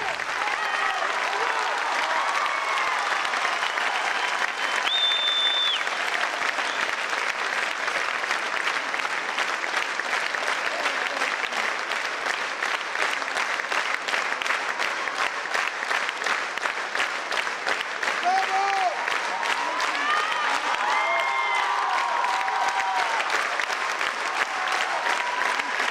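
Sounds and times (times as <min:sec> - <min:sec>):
audience applauding: 0:00.0 - 0:25.9
high whistle: 0:04.6 - 0:05.9.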